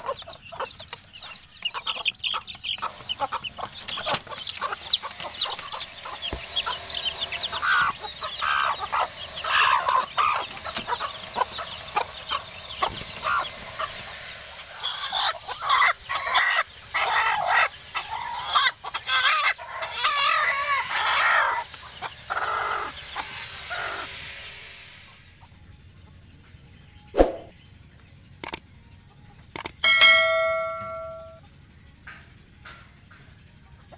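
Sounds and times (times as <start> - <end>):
hen squawking: 0.0 - 24.1
hen clucking: 0.0 - 24.2
chicks peeping: 0.0 - 31.7.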